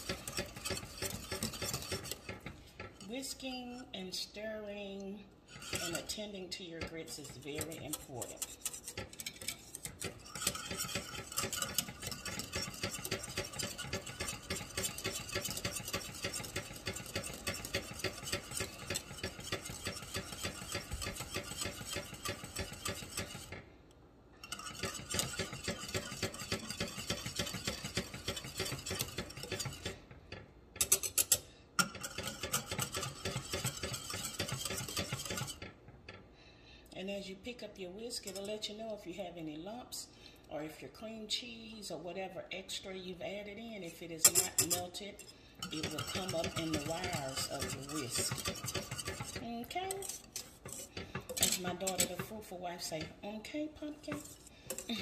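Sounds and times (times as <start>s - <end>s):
whisk knocking against pan: 0.0s - 3.0s, 5.6s - 6.2s, 6.8s - 23.6s, 24.5s - 31.0s, 31.8s - 36.2s, 45.6s - 53.2s
whisk scraping metal saucepan: 0.0s - 23.7s, 24.4s - 36.2s, 37.6s - 39.3s, 43.2s - 55.0s.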